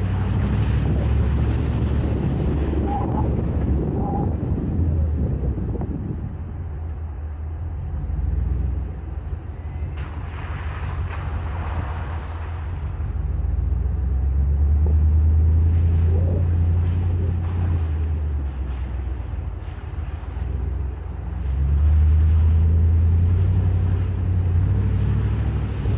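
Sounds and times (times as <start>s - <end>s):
truck engine rumble: 0.0s - 25.9s
rushing hiss: 9.9s - 13.0s.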